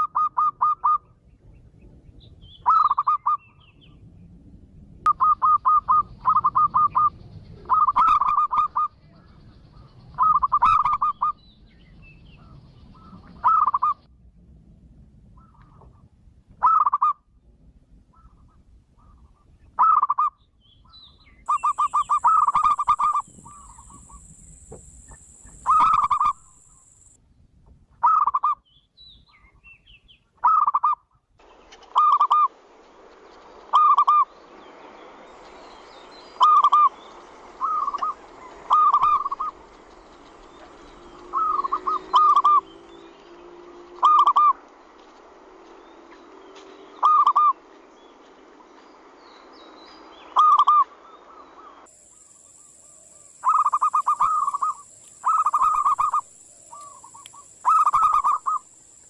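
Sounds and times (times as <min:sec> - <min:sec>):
dove cooing: 0:05.1 - 0:08.9, 0:21.5 - 0:27.1, 0:37.6 - 0:39.6, 0:41.2 - 0:42.7, 0:44.0 - 0:44.5, 0:52.9 - 0:58.7.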